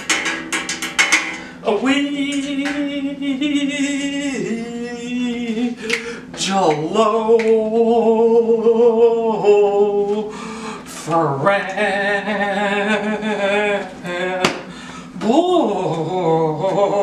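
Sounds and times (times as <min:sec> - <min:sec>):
man singing long notes: 0:01.6 - 0:10.4, 0:11.0 - 0:17.0.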